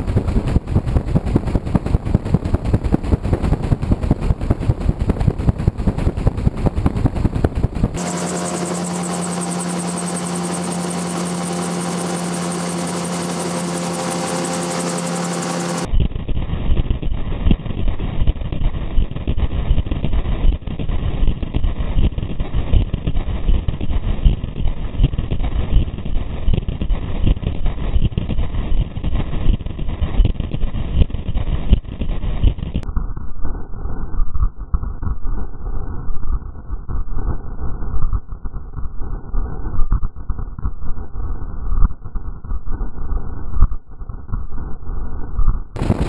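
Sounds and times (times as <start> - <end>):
aircraft engine droning: 0.0 - 15.9, 45.8 - 46.0
pulsing airflow rush over rotor: 0.0 - 15.9, 45.8 - 46.0.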